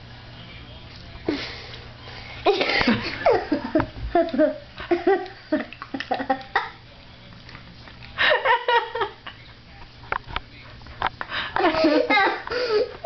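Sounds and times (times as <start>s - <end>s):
person laughing: 2.5s - 6.8s, 11.2s - 13.0s.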